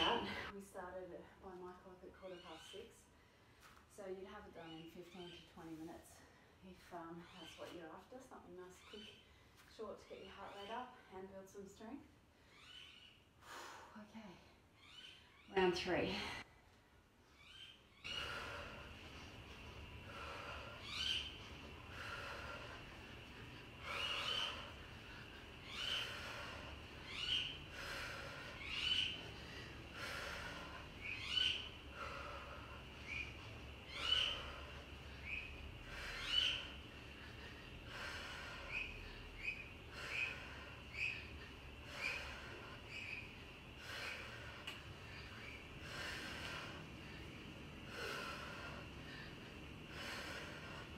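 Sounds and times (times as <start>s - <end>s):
woman breathing hard: 18.1s - 50.9s.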